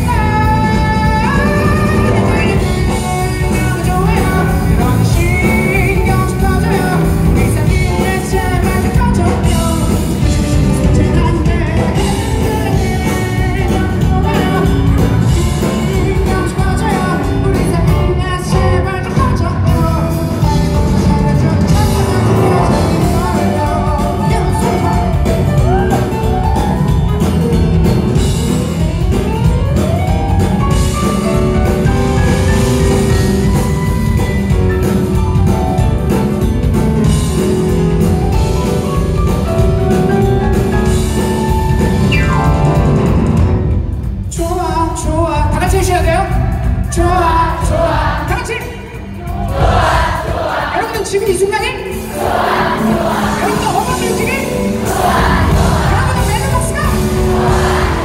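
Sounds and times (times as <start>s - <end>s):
man singing: 0.0s - 26.5s, 44.3s - 49.0s
electric keyboard: 0.0s - 44.3s
guitar: 0.0s - 50.7s, 51.3s - 58.0s
drum kit: 0.0s - 58.0s.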